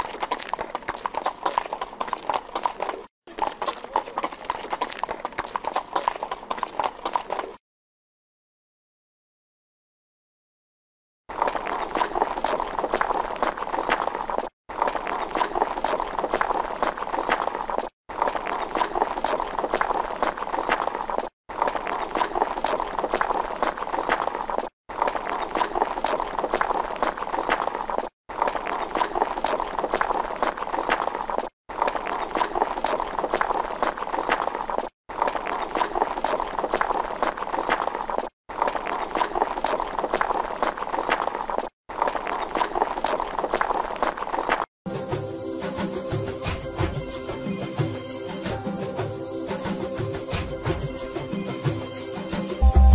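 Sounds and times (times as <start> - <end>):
galloping horse hoofbeats: 0.0 - 7.6.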